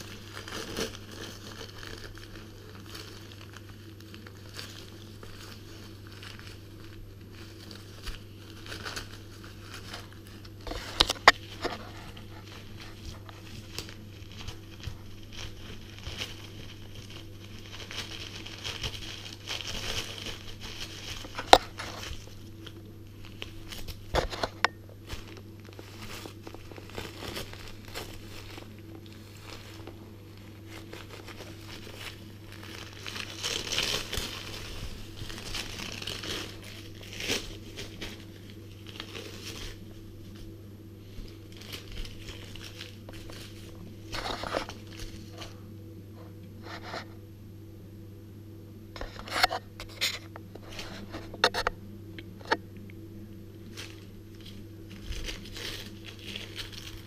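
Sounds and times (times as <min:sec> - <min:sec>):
dog tearing paper: 0:00.0 - 0:30.0, 0:30.6 - 0:39.9, 0:53.7 - 0:57.0.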